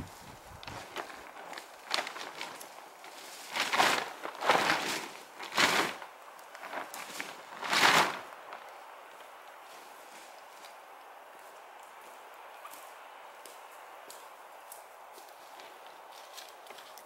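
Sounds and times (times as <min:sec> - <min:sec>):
tarp flapping and rustling: 0:00.0 - 0:11.0.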